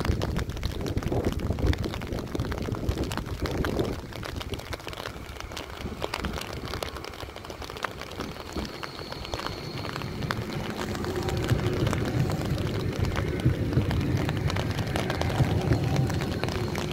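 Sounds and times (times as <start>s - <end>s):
electric tram running rumble: 0.0s - 16.9s
light rain pattering: 0.0s - 16.9s
brief high whine: 8.2s - 16.9s.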